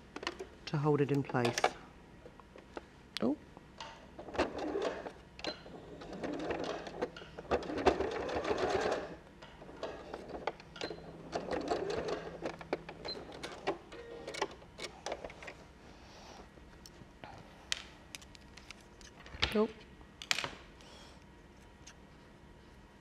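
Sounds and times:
sewing machine motor hum: 0:04.2 - 0:15.5.

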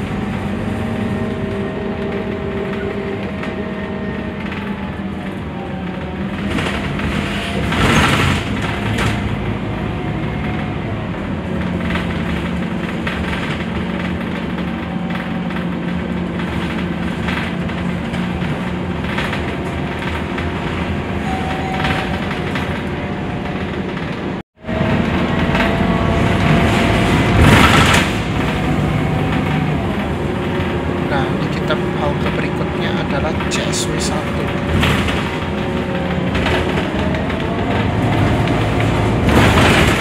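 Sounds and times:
bus engine hum and road noise: 0:00.0 - 0:40.0
knocks and rattles: 0:11.4 - 0:40.0.

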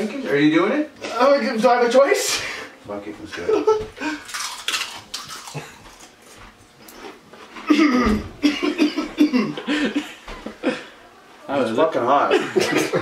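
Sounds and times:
man coughing: 0:07.7 - 0:10.8.

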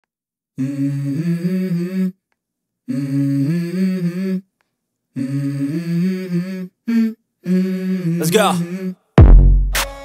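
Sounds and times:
wordless hummed vocal: 0:00.6 - 0:02.2, 0:02.8 - 0:04.5, 0:05.1 - 0:09.1.

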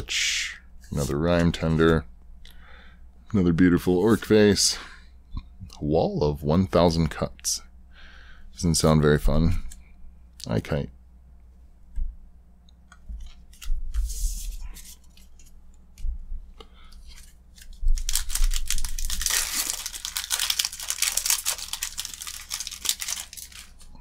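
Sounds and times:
cards clicking and rustling: 0:12.9 - 0:16.0, 0:16.9 - 0:23.9
foil wrapper crinkling and tearing: 0:17.1 - 0:24.0.

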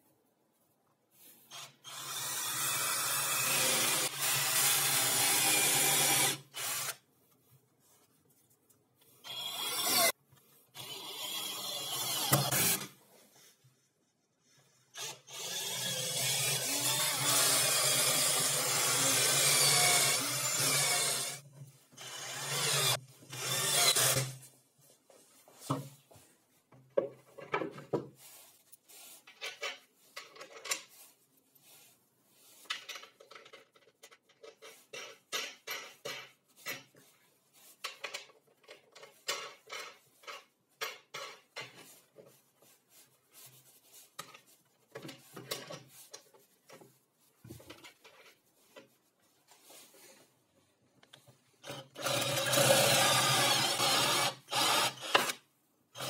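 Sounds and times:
cordless drill driving screw: 0:01.5 - 0:07.0, 0:09.2 - 0:10.1, 0:10.8 - 0:12.9, 0:15.0 - 0:21.4, 0:22.0 - 0:24.4, 0:51.6 - 0:55.4.

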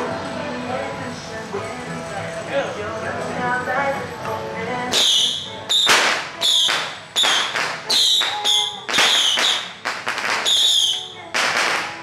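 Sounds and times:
whip cracking: 0:05.0 - 0:11.9.

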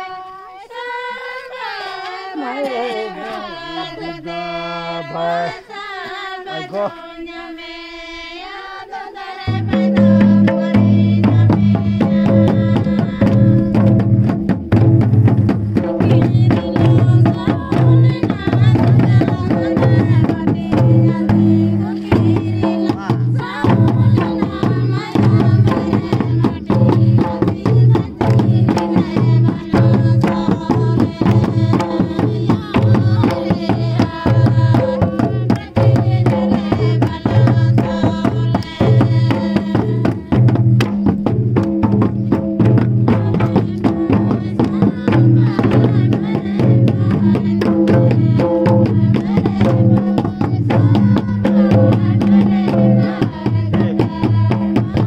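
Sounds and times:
women singing unaccompanied: 0:00.0 - 0:55.0
hand-beaten barrel drums: 0:09.4 - 0:55.0
stick-beaten drum: 0:09.4 - 0:55.0.

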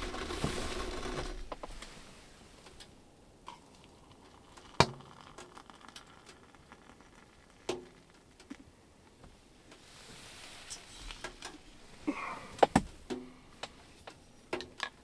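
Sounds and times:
tea pouring into mug: 0:03.5 - 0:08.6.

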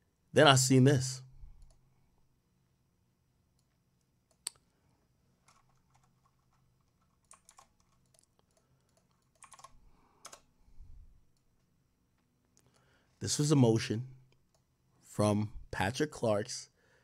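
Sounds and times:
keyboard and mouse clicks: 0:05.4 - 0:10.5.

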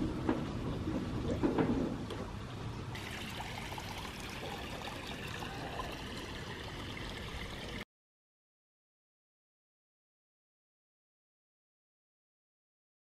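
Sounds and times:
water churning in a hot tub: 0:00.0 - 0:07.8.

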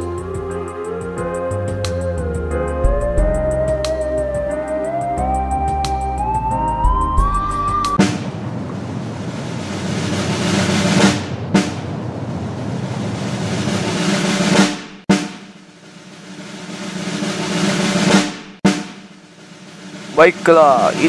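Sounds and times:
snare drum rolls: 0:07.9 - 0:21.0
single snare drum hit: 0:14.5 - 0:15.7, 0:17.0 - 0:19.2.

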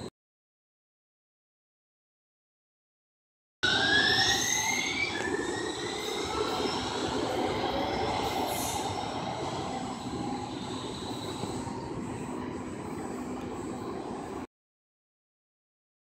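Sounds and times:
squealing train wheels: 0:03.6 - 0:14.4
train rumble: 0:03.6 - 0:14.4
train whine: 0:03.6 - 0:14.5.

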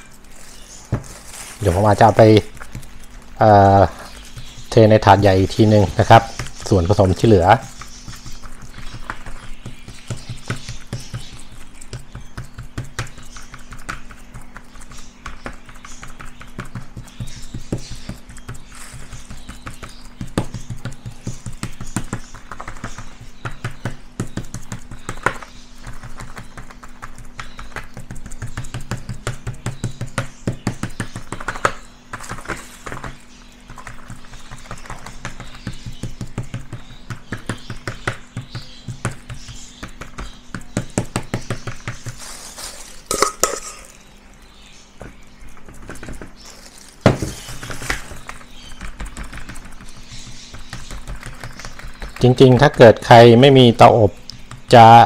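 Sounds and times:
spoon patting paste on tray: 0:00.0 - 0:44.0.

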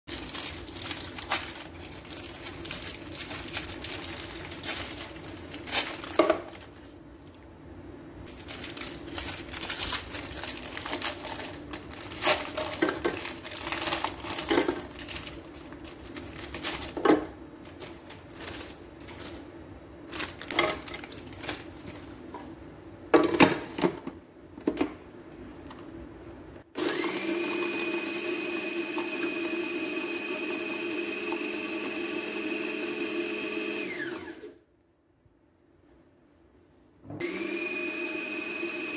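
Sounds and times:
wrappers crinkling: 0:00.1 - 0:07.4, 0:08.3 - 0:22.3
food processor motor whining: 0:26.8 - 0:34.5, 0:37.2 - 0:38.9.

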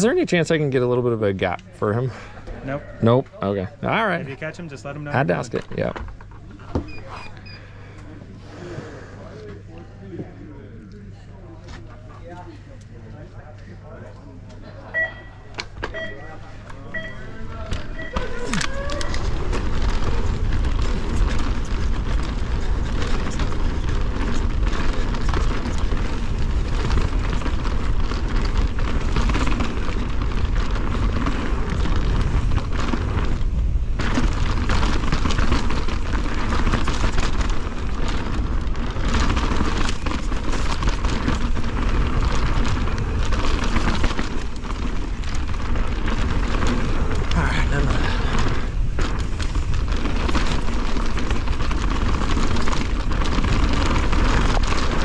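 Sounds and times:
mountain bike rattling over trail: 0:03.8 - 0:06.4, 0:17.0 - 0:55.0.

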